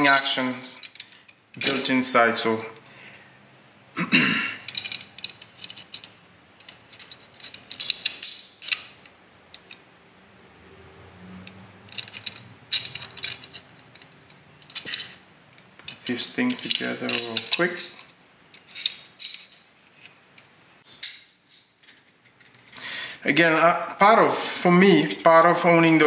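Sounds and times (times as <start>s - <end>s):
pistol parts clicking and scraping: 4.6s - 9.8s, 11.4s - 22.8s.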